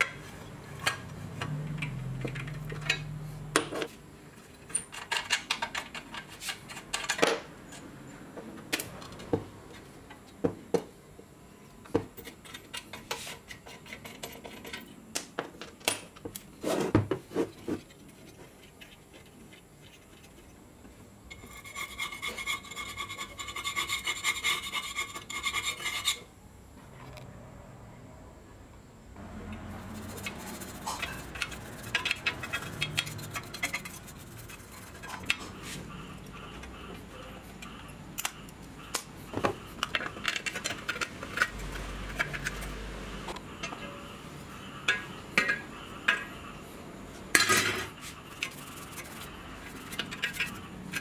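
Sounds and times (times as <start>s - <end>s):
metal parts clicking and scraping: 0.0s - 7.9s, 12.1s - 15.0s, 29.8s - 35.6s, 39.8s - 44.0s, 47.3s - 51.0s.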